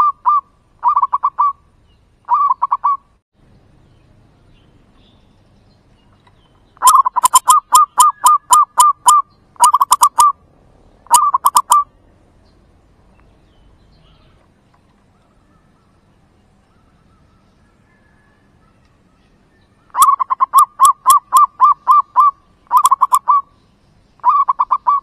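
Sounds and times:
dove cooing: 0.0s - 1.6s, 2.3s - 3.1s, 6.8s - 10.4s, 11.1s - 11.9s, 19.9s - 23.5s, 24.2s - 25.0s.

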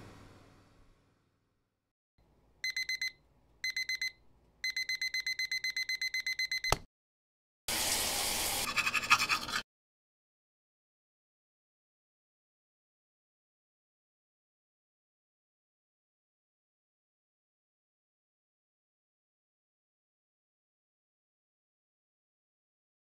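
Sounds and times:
digital alarm clock beeping: 2.6s - 6.9s.

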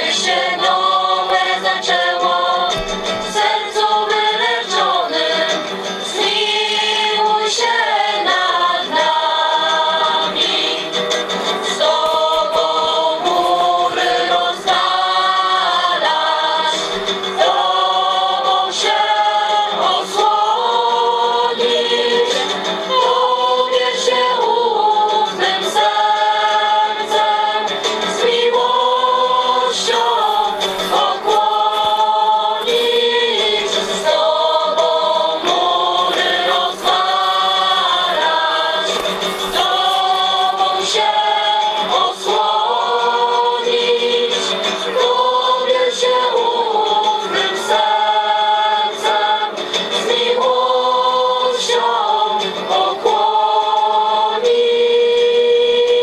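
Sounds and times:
choir singing a hymn: 0.0s - 56.0s.

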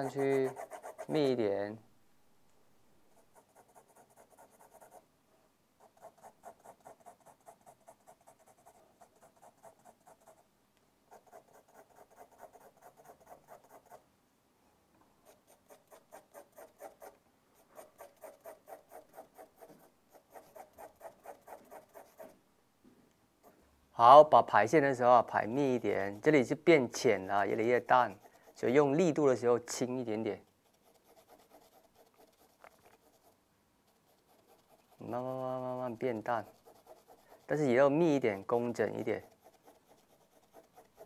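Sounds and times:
pencil hatching on paper: 0.0s - 1.5s, 3.2s - 5.0s, 5.8s - 10.4s, 11.1s - 14.0s, 15.2s - 22.4s, 26.9s - 28.8s, 30.3s - 41.0s.

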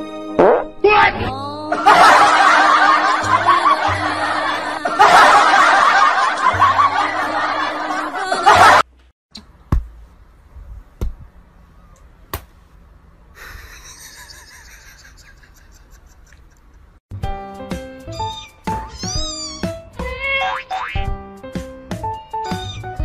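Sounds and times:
background music: 0.0s - 8.8s, 17.1s - 23.0s
canned laughter: 1.7s - 8.8s, 13.4s - 16.9s.

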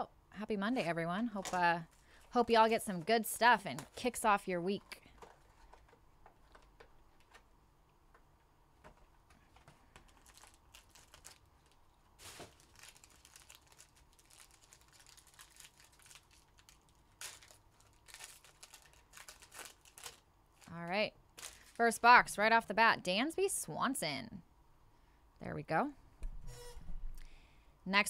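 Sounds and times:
foil pack rustling: 1.3s - 7.5s, 9.4s - 20.8s, 21.4s - 21.9s
card box crinkling and tearing: 10.0s - 11.4s, 12.2s - 20.7s.

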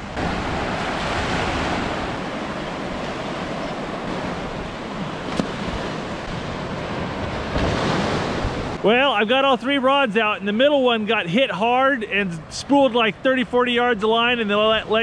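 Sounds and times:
wind buffeting microphone: 0.0s - 8.9s
ocean surf washing onto beach: 0.0s - 15.0s.

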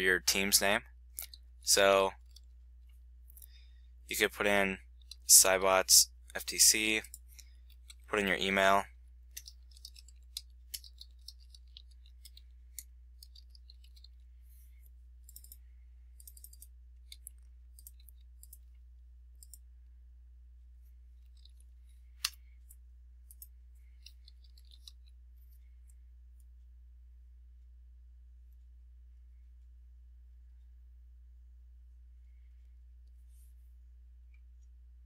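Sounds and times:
steady low hum: 0.0s - 35.0s
keyboard keys clicking: 9.3s - 14.2s, 15.2s - 15.6s, 16.2s - 18.7s
mouse clicks: 9.3s - 14.2s.

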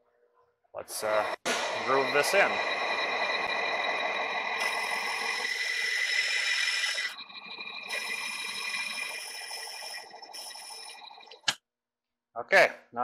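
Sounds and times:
rough metal cutting noise: 1.0s - 10.9s
lathe whine: 1.0s - 11.4s.

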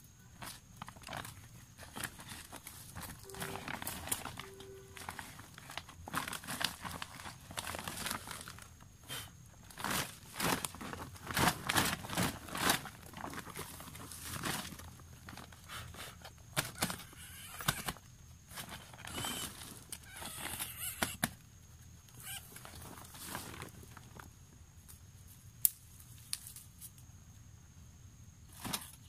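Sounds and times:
plastic bag crinkling: 0.4s - 8.8s, 9.6s - 15.6s
dry grass rustling underfoot: 0.4s - 8.9s.

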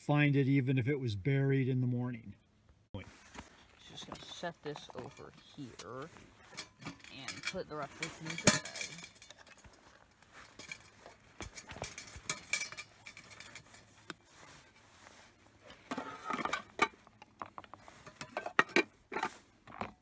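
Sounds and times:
cookware knocking and clinking: 6.5s - 9.7s, 11.4s - 13.6s.

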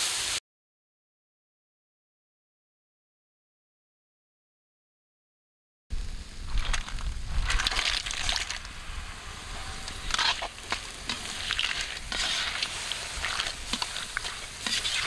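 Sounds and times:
food sizzling in a pan: 0.0s - 0.4s, 5.9s - 15.0s
spoon scraping a pan: 9.4s - 15.0s.

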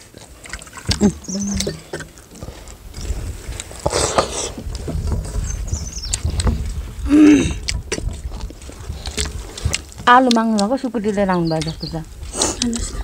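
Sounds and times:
chewing: 0.0s - 13.0s
wind rumble on microphone: 2.4s - 10.2s, 11.0s - 13.0s
fingers mixing rice on plates: 7.5s - 13.0s.

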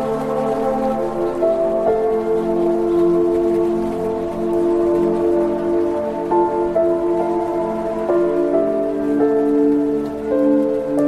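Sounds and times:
calm music with held chord: 0.0s - 11.0s.

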